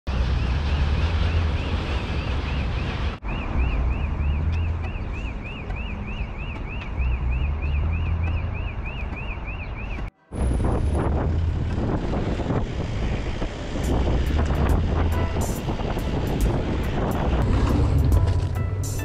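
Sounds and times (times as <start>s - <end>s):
wind buffeting microphone: 10.3s - 18.9s.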